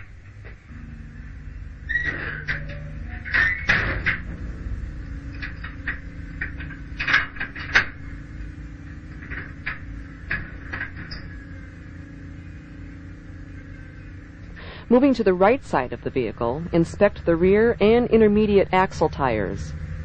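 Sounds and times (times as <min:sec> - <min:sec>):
steady low hum: 0:00.0 - 0:20.0
metal clinks and knocks: 0:05.2 - 0:08.2.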